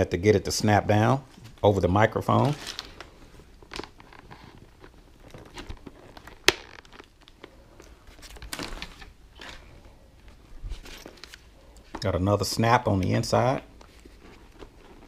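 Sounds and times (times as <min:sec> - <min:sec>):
helmet padding rustling: 0:00.6 - 0:12.2, 0:12.8 - 0:15.0.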